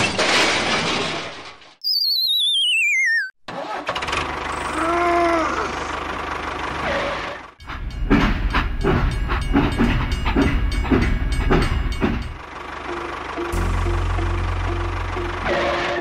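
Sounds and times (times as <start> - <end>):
short warbling tone: 1.8 - 3.4
tractor engine running: 3.5 - 16.0.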